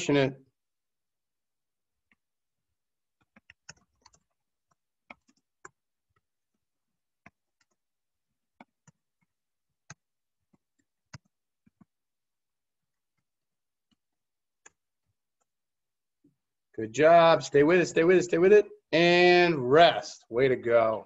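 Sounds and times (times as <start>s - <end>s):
faint irregular clicks and taps: 1.9s - 16.4s.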